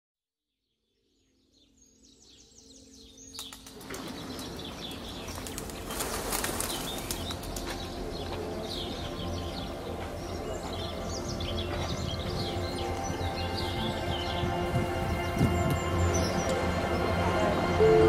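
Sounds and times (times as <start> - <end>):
birds chirping: 1.0 - 18.0
wings fluttering: 3.3 - 7.9.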